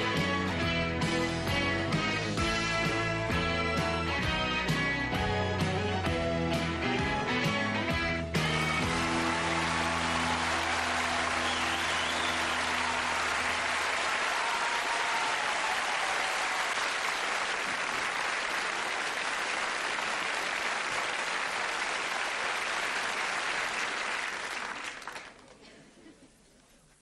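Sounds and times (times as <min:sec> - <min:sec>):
audience applauding: 0:08.4 - 0:25.7.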